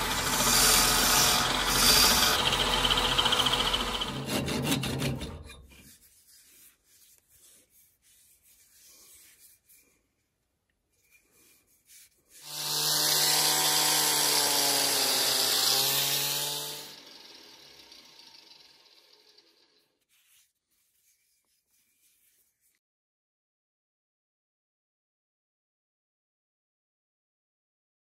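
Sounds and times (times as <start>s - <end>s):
power tool humming and hissing: 0.0s - 4.2s, 12.4s - 19.7s
wood lathe tool cutting: 0.0s - 5.6s, 12.4s - 19.8s.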